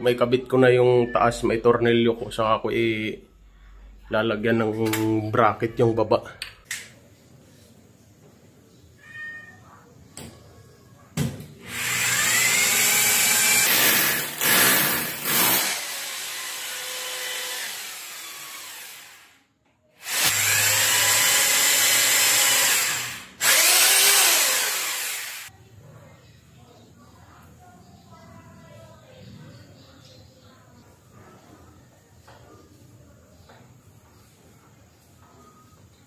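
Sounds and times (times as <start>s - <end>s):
power drill boring into wall: 11.6s - 19.4s, 20.0s - 25.5s.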